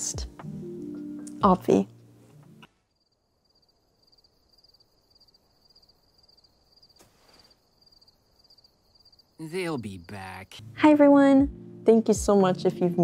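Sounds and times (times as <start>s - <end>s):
crickets chirping: 2.6s - 10.6s
soft rustle: 7.0s - 7.6s.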